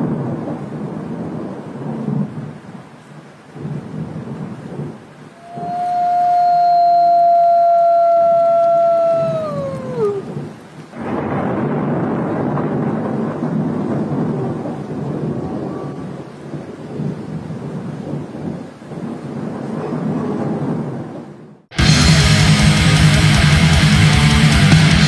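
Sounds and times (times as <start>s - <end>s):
rain: 0.0s - 25.0s
thunder rumbling: 0.0s - 25.0s
siren-like descending tone: 5.4s - 10.2s.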